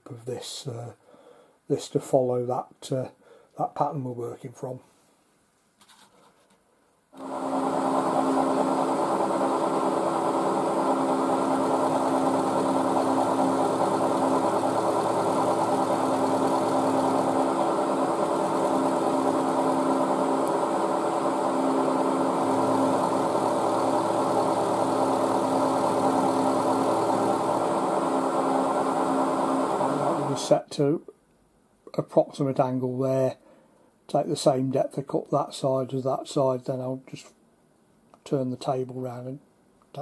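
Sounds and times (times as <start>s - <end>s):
end mill cutting metal: 7.2s - 30.5s
milling machine whining: 7.2s - 30.5s.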